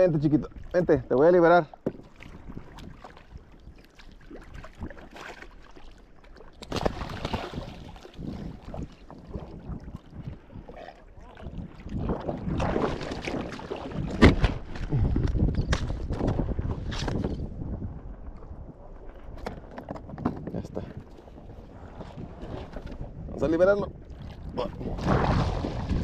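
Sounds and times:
bird splashing in water: 6.6s - 8.2s.

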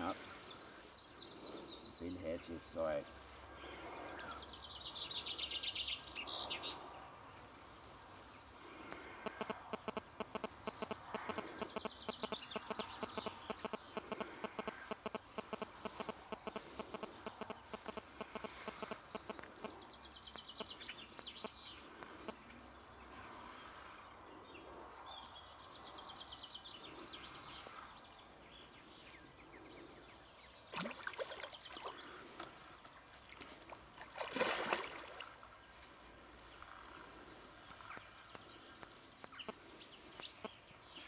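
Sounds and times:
bird trills: 9.2s - 19.4s, 40.2s - 40.6s
faint river water running: 30.2s - 40.9s.

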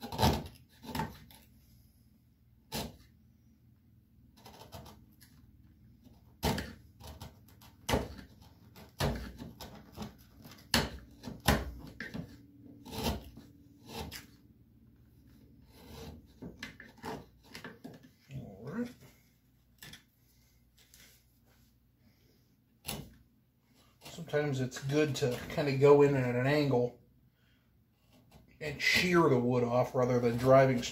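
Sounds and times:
chisel chipping wood: 0.0s - 1.4s, 2.7s - 3.0s, 4.4s - 5.3s, 6.0s - 14.4s, 15.6s - 18.0s, 22.8s - 23.2s.

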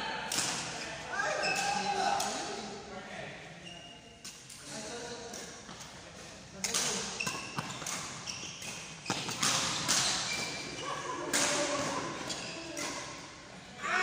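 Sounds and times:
rackets hitting shuttlecock: 0.3s - 0.8s, 6.6s - 13.2s
voices in background: 9.3s - 14.0s.

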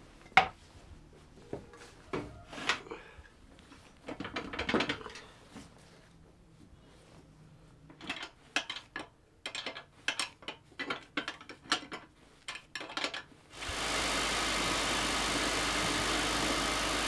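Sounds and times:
loud steady machine noise: 13.6s - 17.0s.

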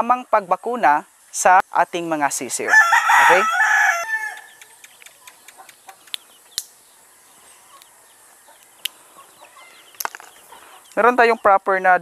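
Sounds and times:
rooster crowing: 2.6s - 4.7s
chickens clucking and peeping: 2.6s - 12.0s.

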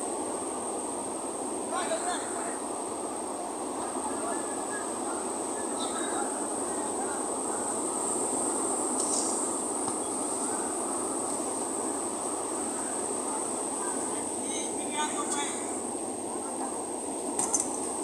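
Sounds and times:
sea surf: 0.0s - 18.0s
wind: 0.0s - 18.0s
thin high-pitched whine: 3.3s - 18.0s.

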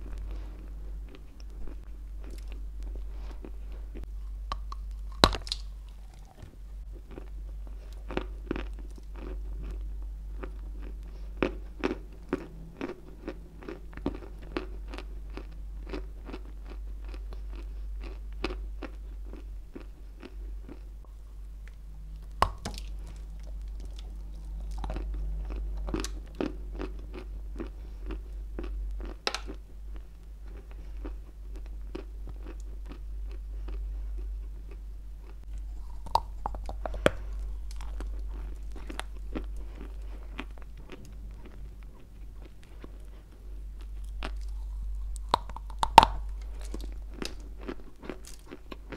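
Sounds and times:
crunchy chewing of clay: 0.0s - 48.9s.

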